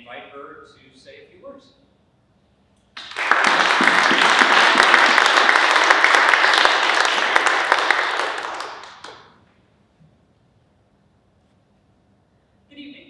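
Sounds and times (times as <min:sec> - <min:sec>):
audience applauding: 0:03.0 - 0:09.4.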